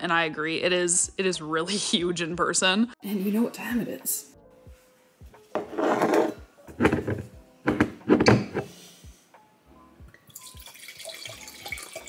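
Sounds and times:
background music with steady beat: 1.0 - 12.0
wine pouring into a glass: 10.3 - 12.0.

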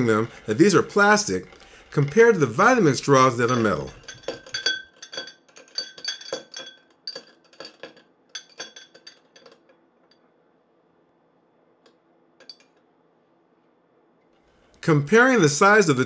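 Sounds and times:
metal straws clinking in a glass: 0.0 - 9.7.

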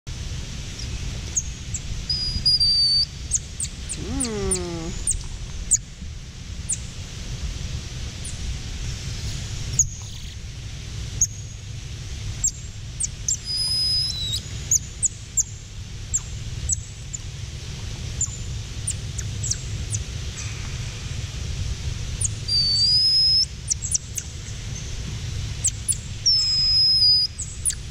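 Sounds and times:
steady low hum: 0.1 - 27.9
monkeys chirping: 3.9 - 5.2.

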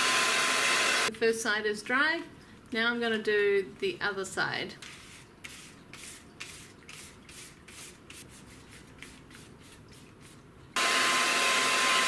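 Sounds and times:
paintbrush strokes on paper bag: 4.8 - 10.4.

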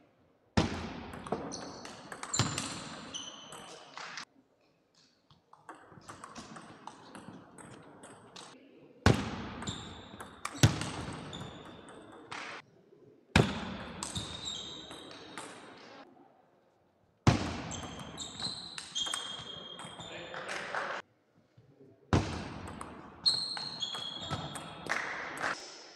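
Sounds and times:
shoe squeaks on wooden floor: 17.7 - 20.2, 23.2 - 24.6.

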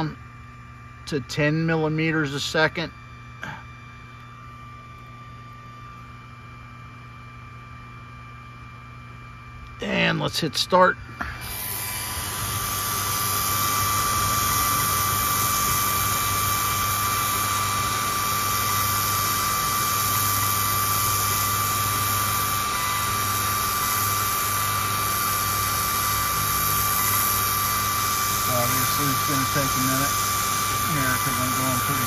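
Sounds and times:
laser engraver high whine: 0.0 - 32.0
air assist hiss: 11.2 - 32.0.

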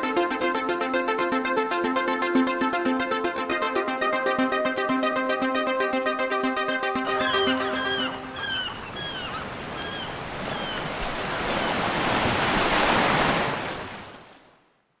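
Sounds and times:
ocean waves breaking: 7.1 - 14.6.

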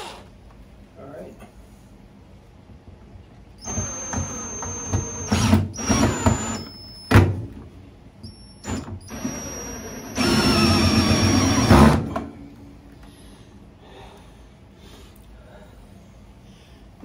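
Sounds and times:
cordless drill whine: 3.6 - 7.2, 8.2 - 12.2.

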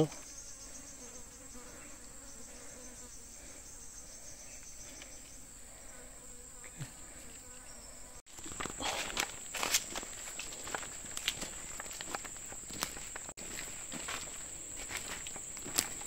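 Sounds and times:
footsteps crunching on dry leaves: 8.3 - 16.0
high-pitched insect drone: 9.1 - 16.0.

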